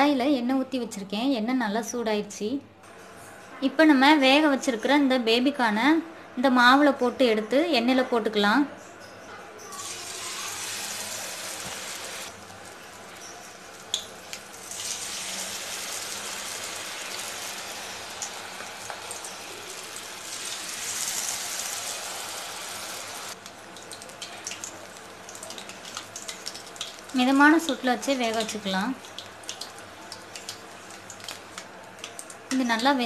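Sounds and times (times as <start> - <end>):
deep-frying sizzle in hot oil: 9.7 - 33.0.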